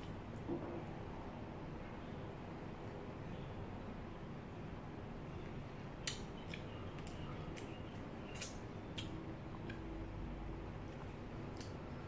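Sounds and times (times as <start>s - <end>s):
low room hum: 0.0s - 12.0s
mouth clicks and smacks chewing: 6.0s - 10.0s, 10.8s - 11.8s.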